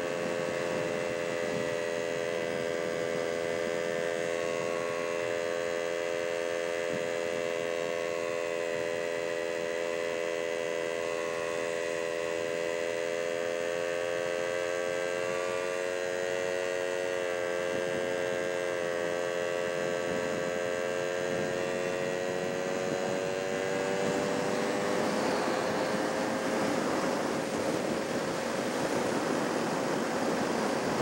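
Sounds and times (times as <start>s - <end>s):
road and wind noise: 0.0s - 31.0s
vehicle engine humming: 0.0s - 31.0s.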